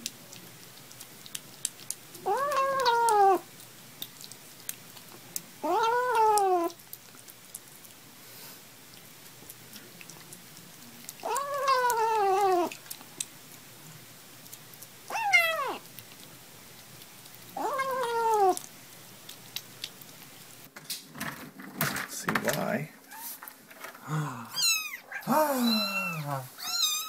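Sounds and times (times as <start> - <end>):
kitten meowing: 2.2 - 3.4, 5.6 - 6.8, 11.2 - 12.8, 15.1 - 15.8, 17.6 - 18.6, 24.5 - 27.0.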